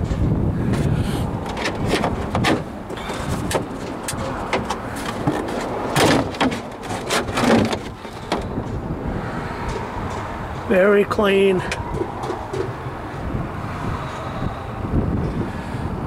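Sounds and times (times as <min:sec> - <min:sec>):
handling clicks and rustles: 0:00.0 - 0:08.9, 0:11.6 - 0:13.2.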